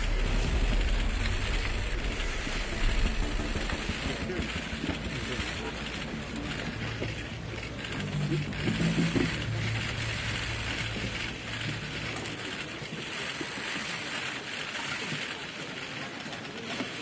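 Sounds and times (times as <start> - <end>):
low hum: 0.0 - 13.6.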